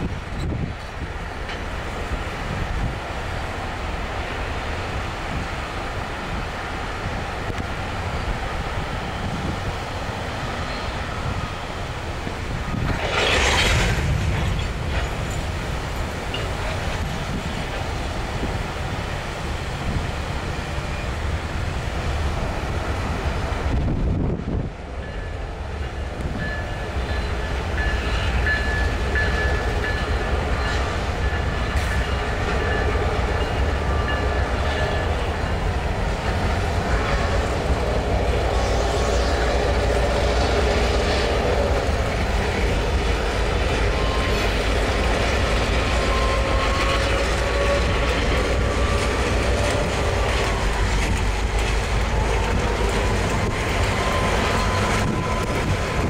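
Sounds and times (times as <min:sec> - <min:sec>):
train wheels clacking over rail joints: 0:12.2 - 0:18.0, 0:26.2 - 0:56.0.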